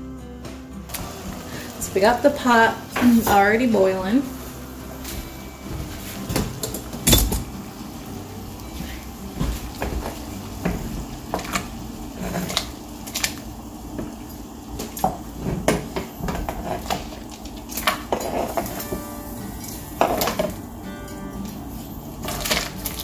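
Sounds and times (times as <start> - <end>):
boiling water: 0.9 - 23.0.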